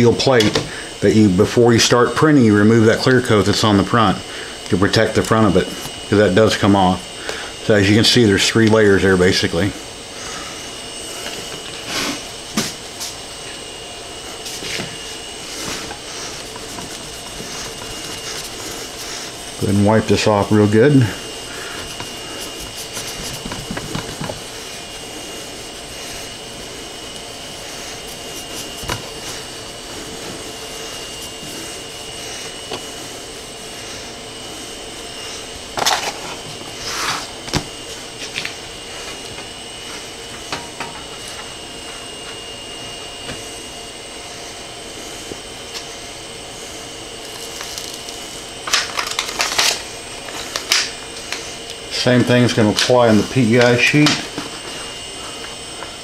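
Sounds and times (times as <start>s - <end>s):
faint high whine: 0.0s - 56.0s
fan hum: 0.0s - 56.0s
cloth wiping steel plate: 14.2s - 34.1s
handling rustles and knocks: 14.4s - 19.7s, 21.8s - 31.6s.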